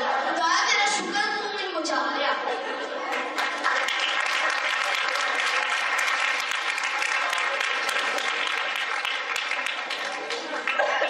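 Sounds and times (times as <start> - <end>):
audience applauding: 3.1 - 11.0.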